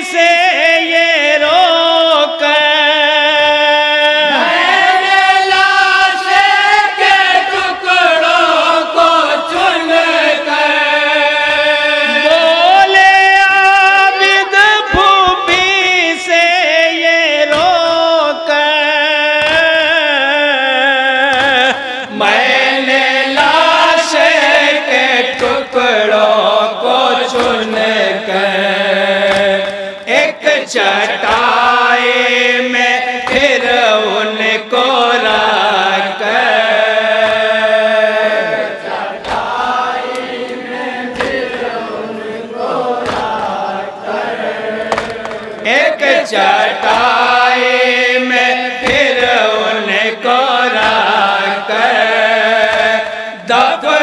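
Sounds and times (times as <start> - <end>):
men chanting in unison through pa: 0.0 - 54.0
chest slaps: 17.5 - 17.9, 19.3 - 19.9, 21.2 - 22.6, 25.2 - 25.9, 27.2 - 28.0, 29.2 - 31.7, 32.8 - 34.0, 36.5 - 41.8, 42.9 - 43.7, 44.8 - 47.3, 48.8 - 49.4, 50.7 - 51.1, 52.6 - 53.3.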